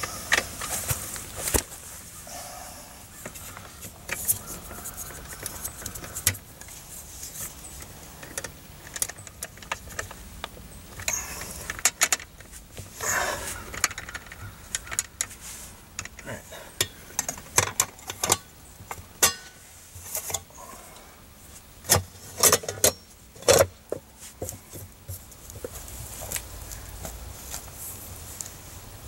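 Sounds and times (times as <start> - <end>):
rustling: 0.0 - 29.0
metallic clicks of wires: 16.0 - 20.5.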